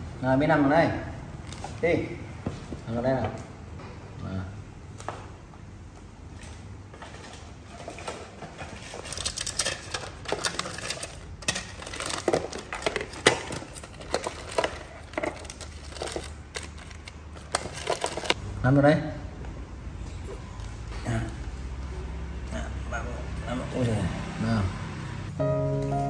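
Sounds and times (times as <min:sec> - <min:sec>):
plastic packets crinkling: 0:08.8 - 0:18.4.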